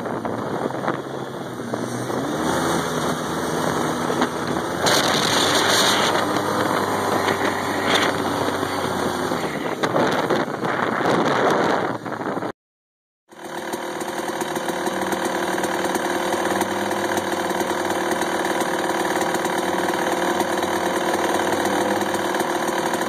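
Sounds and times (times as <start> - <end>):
dirt bike engine revving: 0.0 - 11.9, 13.3 - 23.0
wind buffeting microphone: 0.0 - 12.5.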